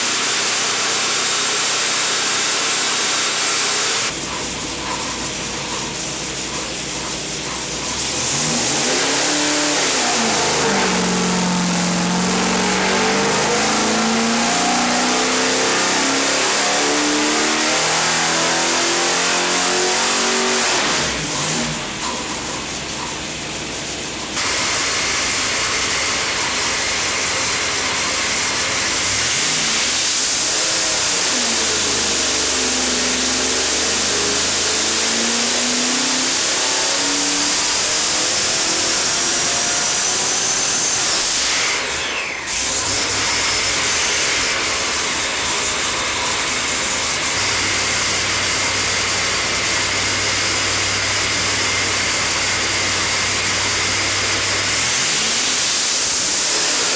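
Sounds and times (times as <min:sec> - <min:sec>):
engine running loud: 0:00.0 - 0:56.9
high whine rising in pitch: 0:08.4 - 0:20.8, 0:29.6 - 0:41.2.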